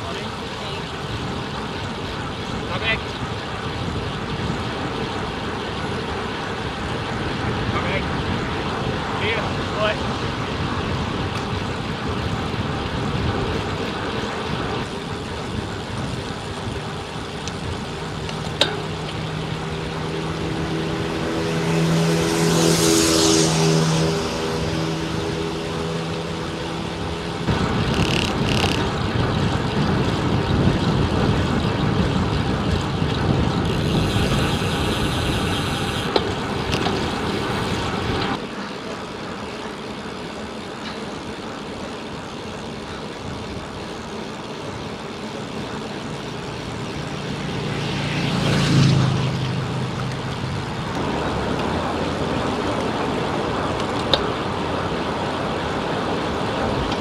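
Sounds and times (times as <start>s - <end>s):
wind rushing over microphone: 0.0s - 38.4s
bicycle road noise: 0.0s - 57.0s
motor vehicle passing: 4.6s - 41.6s, 42.2s - 57.0s.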